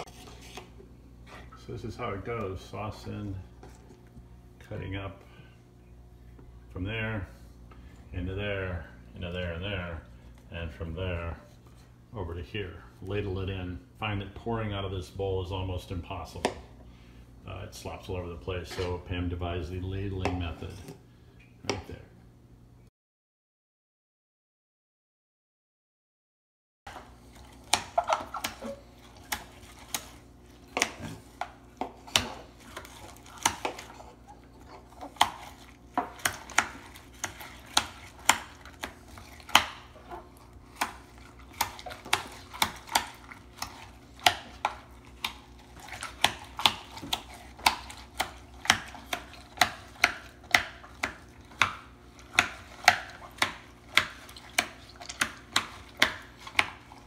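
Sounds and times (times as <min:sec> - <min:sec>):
faint steady hum: 0:00.0 - 0:22.9
knife chopping on cutting board: 0:34.9 - 0:40.0, 0:46.0 - 0:56.9.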